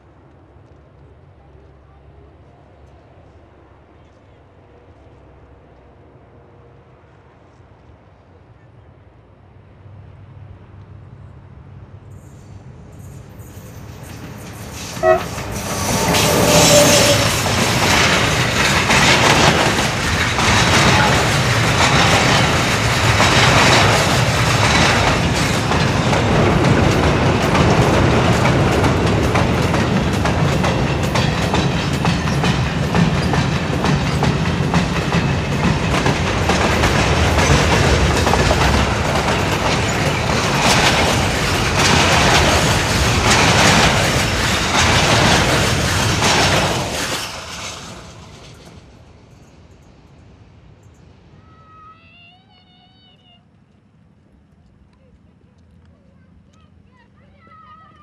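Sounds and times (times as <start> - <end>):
train wheels clattering over rail joints: 13.8 - 50.2.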